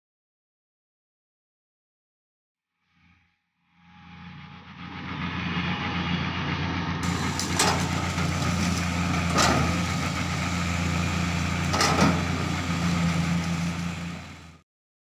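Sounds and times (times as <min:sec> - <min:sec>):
excavator diesel engine running: 0:04.2 - 0:14.6.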